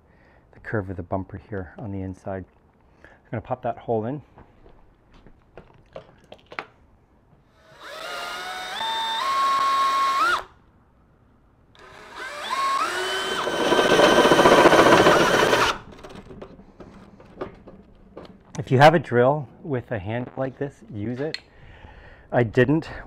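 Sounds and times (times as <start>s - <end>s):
cordless drill cutting metal: 7.6s - 10.5s, 11.8s - 15.9s.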